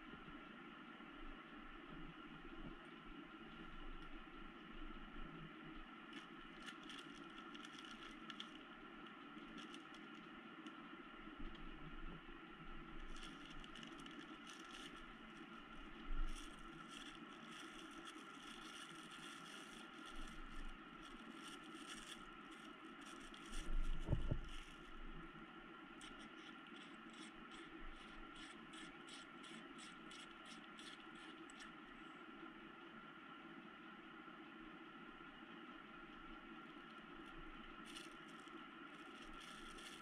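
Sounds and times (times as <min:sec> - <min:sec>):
steady hum: 0:00.0 - 0:40.0
plastic bag crinkling: 0:06.1 - 0:08.6, 0:09.4 - 0:10.3, 0:13.0 - 0:25.0, 0:37.8 - 0:40.0.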